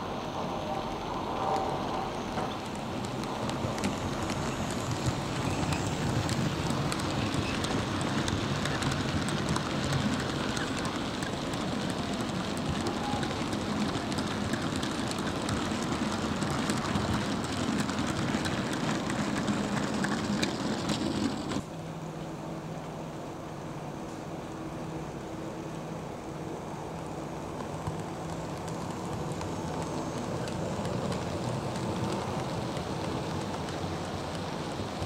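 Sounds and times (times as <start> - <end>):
model wagon wheels rattling: 2.8 - 21.6, 27.6 - 35.0.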